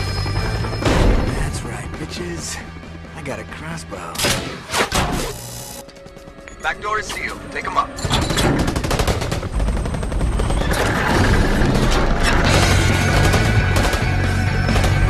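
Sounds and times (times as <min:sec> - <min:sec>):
deep music score: 0:00.0 - 0:15.0
rapid gunfire: 0:08.4 - 0:15.0.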